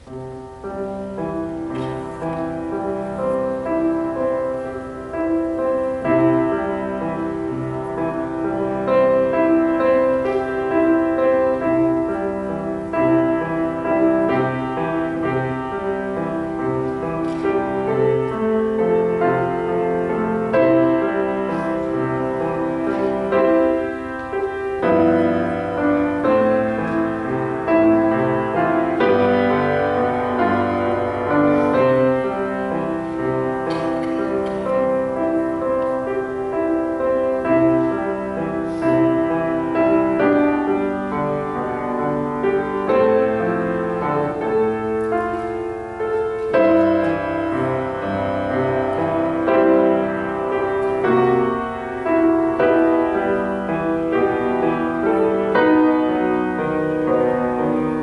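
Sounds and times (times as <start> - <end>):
solo piano: 0.0 - 58.0.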